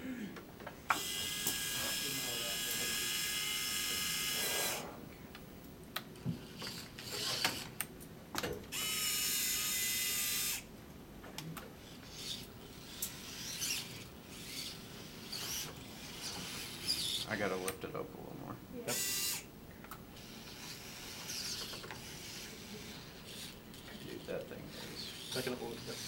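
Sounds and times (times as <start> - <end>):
servo motors whining: 0.9 - 5.0, 6.4 - 7.8, 8.7 - 10.7, 11.8 - 17.8, 18.9 - 19.5, 20.2 - 26.0
gears clicking and rattling: 6.5 - 7.8, 20.2 - 24.4.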